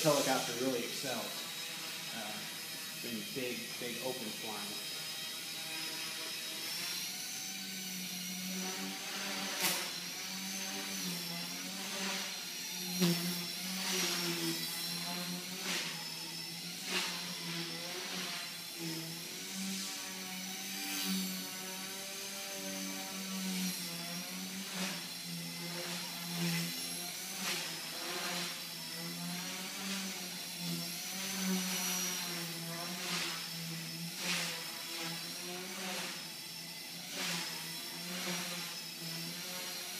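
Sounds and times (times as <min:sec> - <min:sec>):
helicopter rotor buzzing: 0:00.0 - 0:39.9
high motor whine: 0:00.0 - 0:39.9.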